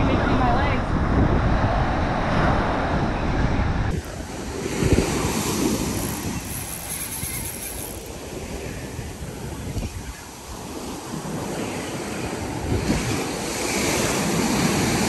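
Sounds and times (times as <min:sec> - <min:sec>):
wind buffeting the microphone: 0:00.0 - 0:15.0.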